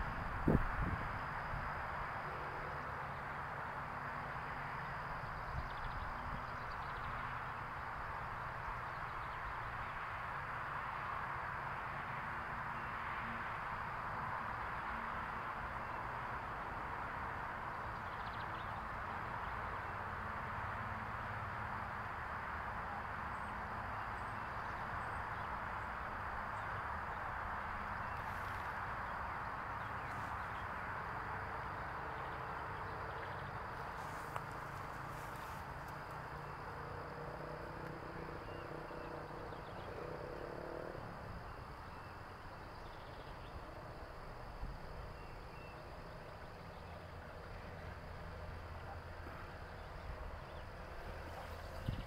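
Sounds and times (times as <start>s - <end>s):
outdoor background hiss: 0.0s - 52.0s.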